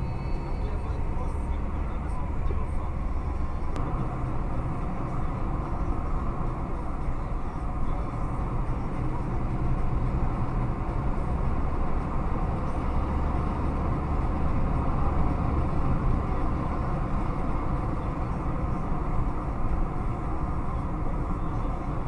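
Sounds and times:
car interior road rumble: 0:00.0 - 0:22.0.

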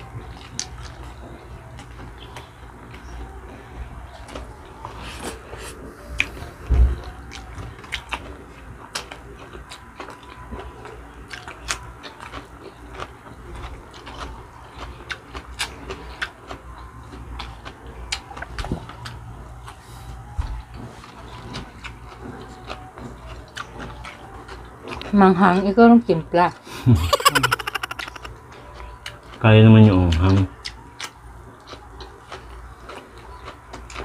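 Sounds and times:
wet chewing and lip-smacking: 0:00.0 - 0:03.3, 0:06.2 - 0:06.4, 0:07.0 - 0:19.8, 0:20.5 - 0:25.7, 0:27.0 - 0:34.0.

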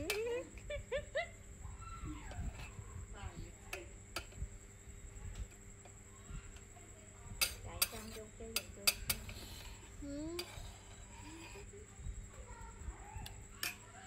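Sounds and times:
utensils clinking against dishes: 0:00.0 - 0:00.6, 0:07.3 - 0:11.7, 0:13.2 - 0:14.0.

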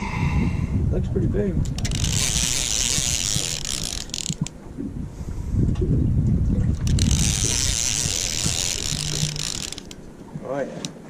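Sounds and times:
fishing reel clicking and whirring: 0:01.6 - 0:04.5, 0:06.7 - 0:10.1.

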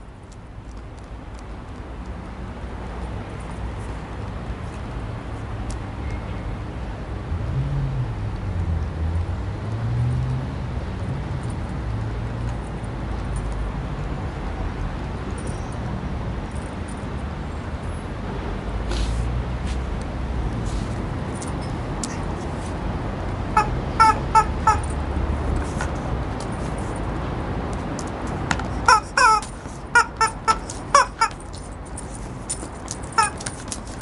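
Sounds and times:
city traffic rumble: 0:00.0 - 0:34.0
rubber chicken toy squeaking: 0:23.6 - 0:25.0, 0:28.8 - 0:31.5, 0:33.0 - 0:33.7.

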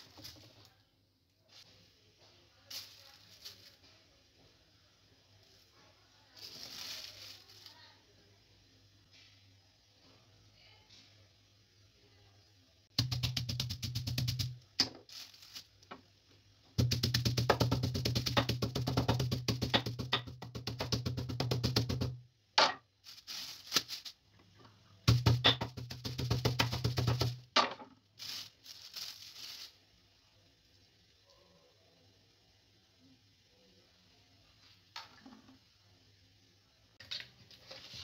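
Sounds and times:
plastic bag crackling: 0:02.7 - 0:03.8, 0:06.4 - 0:07.9, 0:13.0 - 0:16.0, 0:23.0 - 0:24.2, 0:28.1 - 0:29.9
rolling pin knocking on meat: 0:13.0 - 0:15.0, 0:16.8 - 0:22.8, 0:25.1 - 0:27.8.

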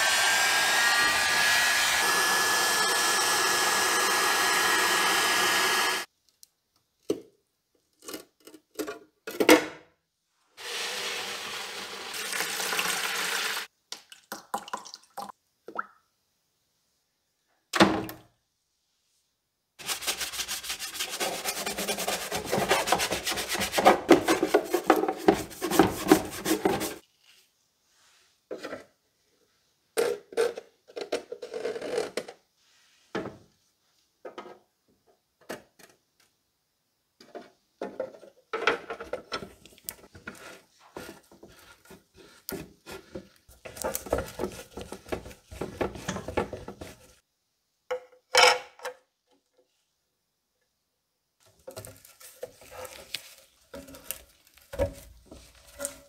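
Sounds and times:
wet scrubbing of plastic: 0:19.8 - 0:27.1, 0:51.8 - 0:56.0
plastic container rubs and knocks: 0:20.6 - 0:27.0, 0:40.1 - 0:47.2.

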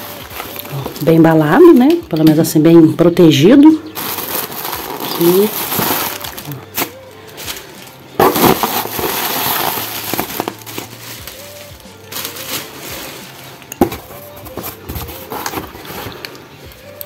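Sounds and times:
plastic packaging crinkling: 0:00.0 - 0:01.8, 0:03.9 - 0:16.2.

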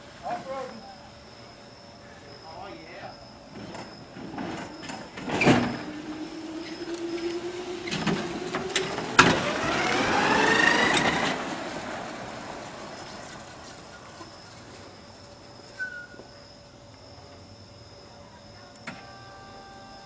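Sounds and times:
electric motor whining: 0:04.8 - 0:11.6.

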